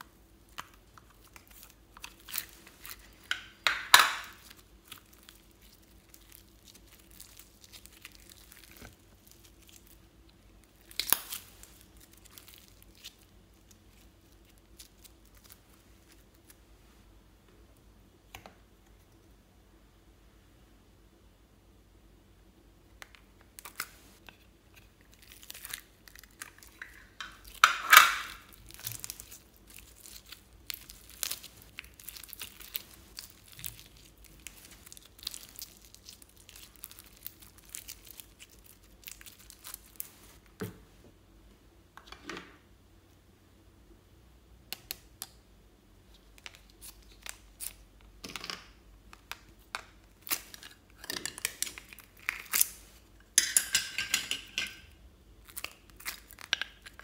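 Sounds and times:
slime crackling and squelching: 0:00.0 - 0:16.6, 0:23.5 - 0:40.4, 0:49.1 - 0:53.1, 0:55.4 - 0:57.0.

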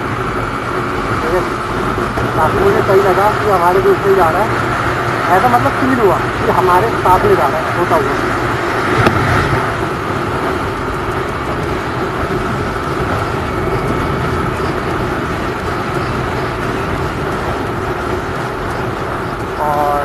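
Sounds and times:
motorcycle engine drone: 0:00.0 - 0:20.0
wind on microphone: 0:00.0 - 0:20.0.

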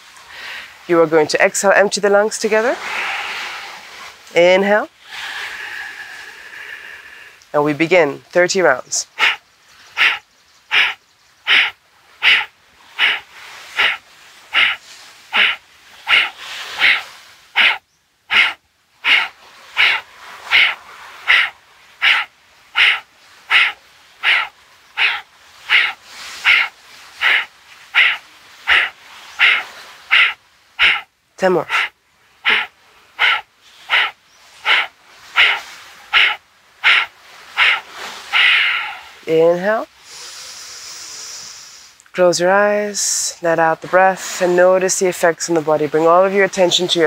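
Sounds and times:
quiet inhalations: 0:00.1 - 0:00.9, 0:02.8 - 0:04.2, 0:04.9 - 0:07.5, 0:09.0 - 0:39.2, 0:39.9 - 0:42.1
forceful nasal exhalations: 0:05.0 - 0:07.5, 0:10.0 - 0:39.2, 0:40.0 - 0:42.1.

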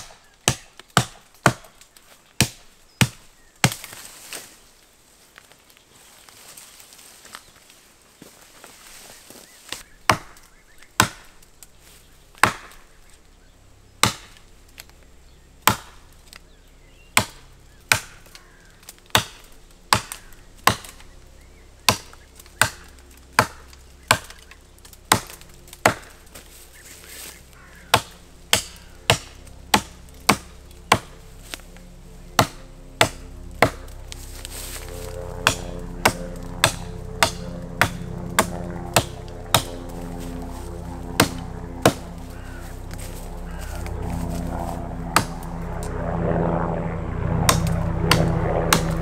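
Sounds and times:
hatchet chopping branches: 0:00.0 - 0:04.5, 0:09.6 - 0:11.5, 0:12.3 - 0:13.0, 0:14.0 - 0:15.0, 0:15.6 - 0:16.4, 0:17.1 - 0:21.2, 0:21.8 - 0:46.0, 0:47.4 - 0:49.0.

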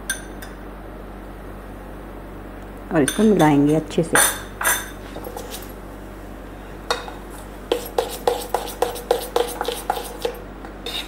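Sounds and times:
spoon scraping metal bowl: 0:04.2 - 0:05.7, 0:07.7 - 0:11.0.

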